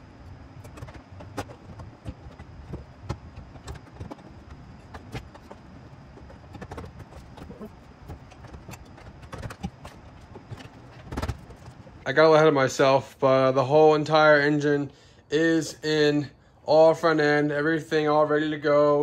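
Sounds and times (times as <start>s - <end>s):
low steady background hum: 0.0s - 19.0s
hands clicking and knocking parts: 0.6s - 12.0s.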